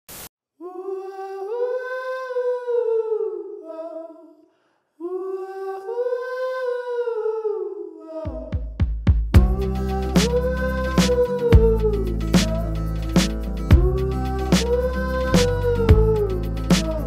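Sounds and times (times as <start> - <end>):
music with heavy bass beat: 9.0 - 17.0
person humming a melody: 9.4 - 17.0.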